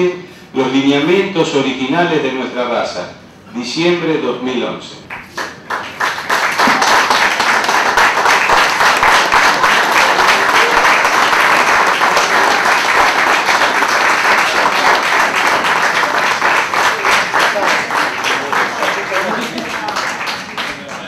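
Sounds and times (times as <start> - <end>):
audience applauding: 5.1 - 21.0.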